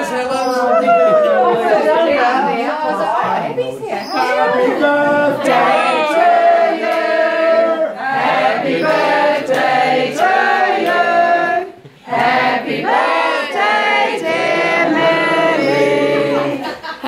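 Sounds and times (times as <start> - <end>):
group singing unaccompanied: 4.1 - 16.9.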